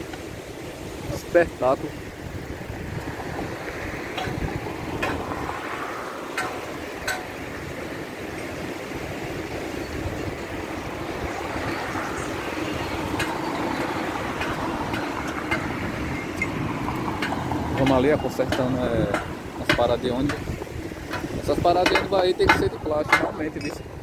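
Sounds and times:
road traffic rushing: 0:00.0 - 0:24.0
wind: 0:00.0 - 0:24.0.

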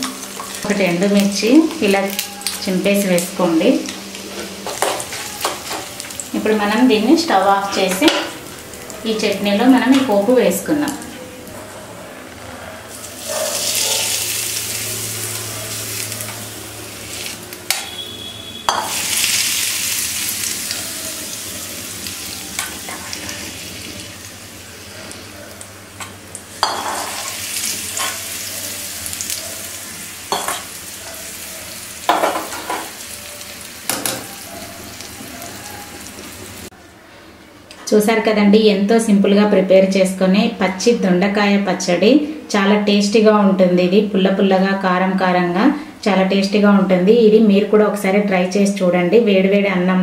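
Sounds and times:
hot oil sizzling: 0:00.0 - 0:11.6, 0:12.9 - 0:36.7
metal spoon scraping pan: 0:26.6 - 0:28.4.

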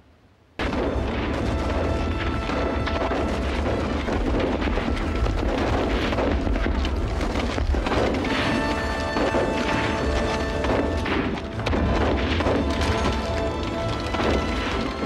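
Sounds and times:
explosions and gunfire rumble: 0:00.6 - 0:15.0
film soundtrack music: 0:00.6 - 0:15.0.

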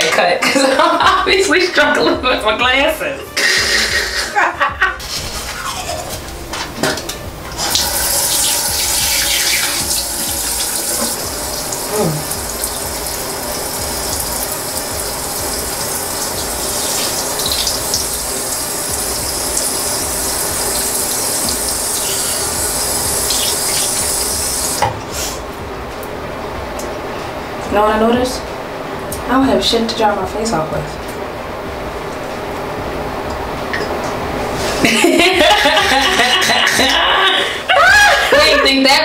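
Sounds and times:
water running from sink tap: 0:07.4 - 0:24.9.

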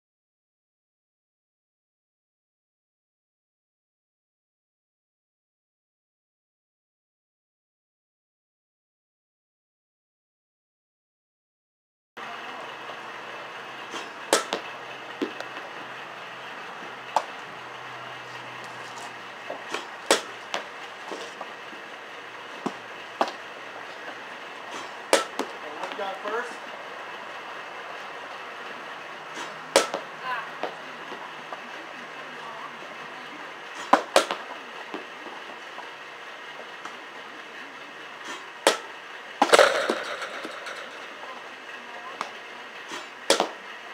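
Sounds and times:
softball knocking off bat: 0:13.9 - 0:14.6, 0:19.6 - 0:21.3, 0:24.7 - 0:26.0, 0:29.4 - 0:30.8, 0:33.8 - 0:35.1, 0:43.3 - 0:43.6
softballs being hit: 0:13.9 - 0:15.8, 0:17.1 - 0:17.5, 0:18.6 - 0:21.5, 0:22.6 - 0:26.0, 0:29.3 - 0:31.7, 0:33.8 - 0:35.1, 0:38.6 - 0:41.2, 0:42.2 - 0:43.6
loud clatter: 0:38.2 - 0:41.6.

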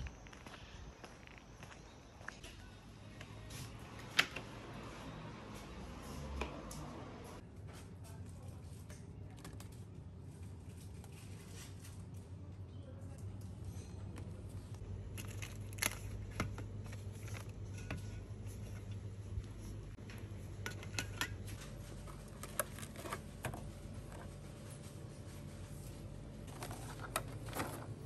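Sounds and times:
steady low hum: 0:09.7 - 0:28.0.

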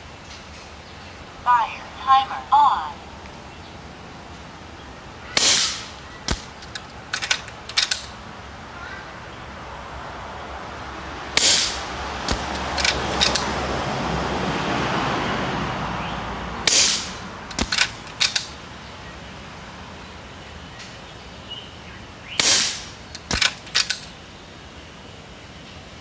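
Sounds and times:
air rifle shot crack: 0:05.3 - 0:08.2, 0:11.4 - 0:13.5, 0:16.6 - 0:18.5, 0:22.4 - 0:24.1
quiet rifle clicks: 0:05.4 - 0:08.2, 0:11.5 - 0:13.5, 0:16.9 - 0:18.6, 0:22.4 - 0:24.2.

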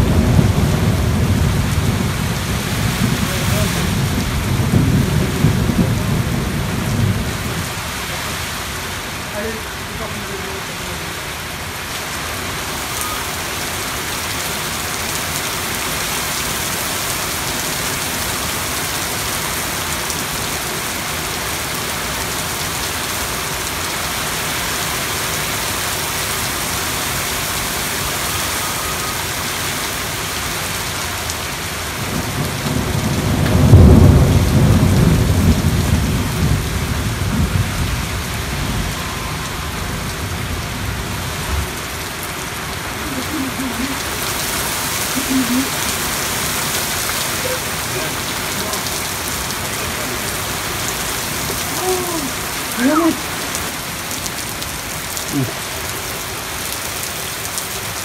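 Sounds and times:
thunder peal: 0:00.0 - 0:07.8, 0:32.1 - 0:40.6
steady rain: 0:00.0 - 0:58.0.

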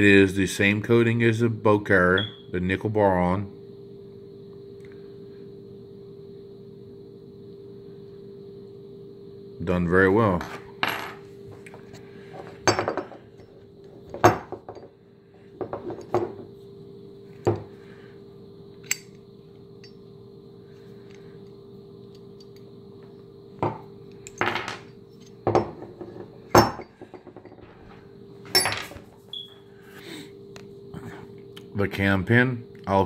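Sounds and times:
metal parts set on wooden table: 0:10.4 - 0:14.9, 0:15.6 - 0:16.5, 0:23.6 - 0:29.4.

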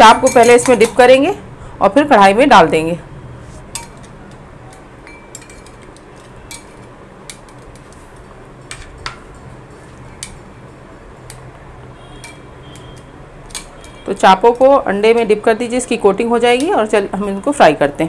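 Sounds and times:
tongs clinking against glass bowl: 0:00.0 - 0:01.1, 0:03.8 - 0:07.4, 0:12.2 - 0:15.3
low background hum: 0:00.0 - 0:18.0.

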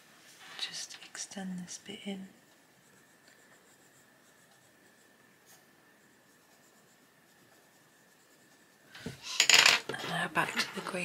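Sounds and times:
pencil scratching on paper: 0:01.7 - 0:09.4.

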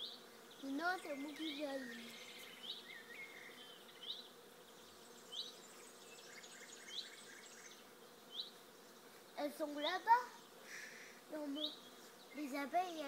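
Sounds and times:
high rising bird chirp: 0:00.0 - 0:12.6
bees buzzing: 0:00.0 - 0:13.0.

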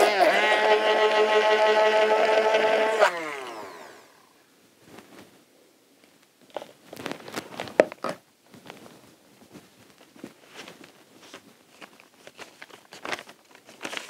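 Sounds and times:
stick blender whining: 0:00.0 - 0:04.4.

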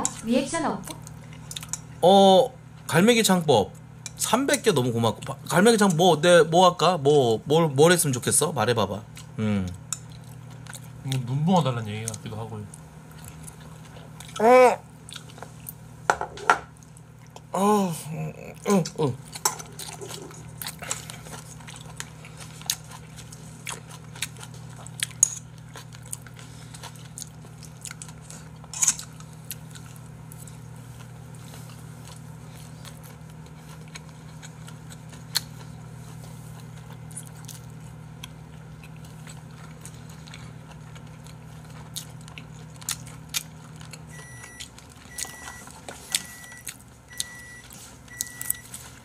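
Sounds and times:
low steady hum: 0:00.0 - 0:49.0
chewing: 0:00.9 - 0:01.9, 0:11.9 - 0:14.4, 0:15.0 - 0:15.8, 0:18.5 - 0:49.0.

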